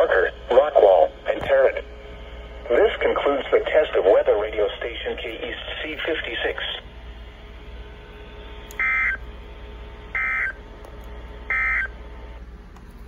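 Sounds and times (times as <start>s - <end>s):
low hum and hiss: 0.0s - 13.0s.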